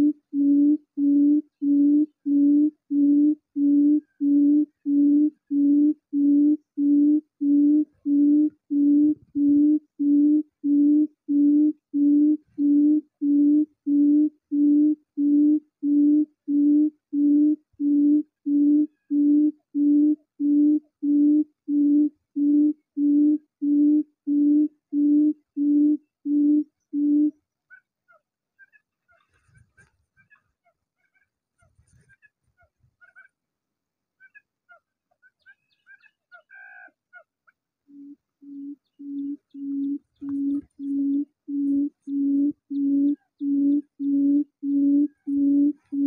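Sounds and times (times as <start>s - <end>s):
quail call from speaker: 34.2s - 37.3s.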